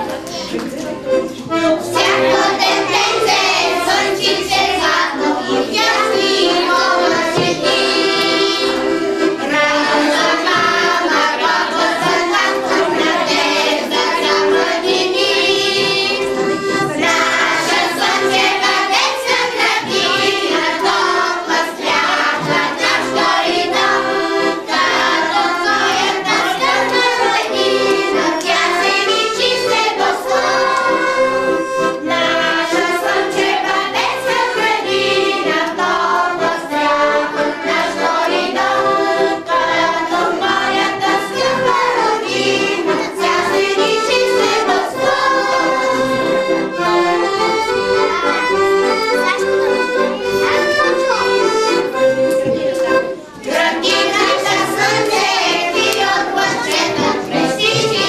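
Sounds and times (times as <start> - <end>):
accordion: 0.0 - 58.0
children singing: 0.0 - 58.0.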